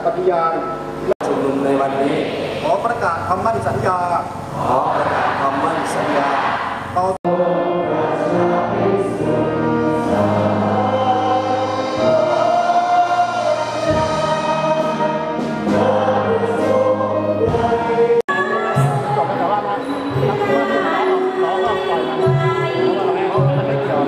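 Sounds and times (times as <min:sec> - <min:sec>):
group singing in unison: 0:04.5 - 0:24.0
live band playing: 0:06.8 - 0:24.0.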